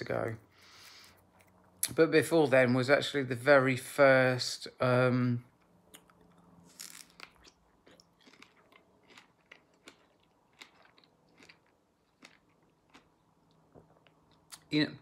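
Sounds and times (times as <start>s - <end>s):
person chewing strawberry: 5.8s - 14.7s.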